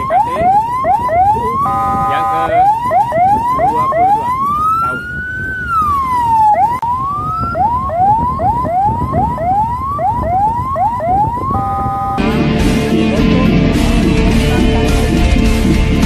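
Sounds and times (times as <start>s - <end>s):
electronic siren: 0.0s - 12.4s
road and engine noise: 0.0s - 16.0s
two-tone horn blast: 1.6s - 2.6s, 11.5s - 15.2s.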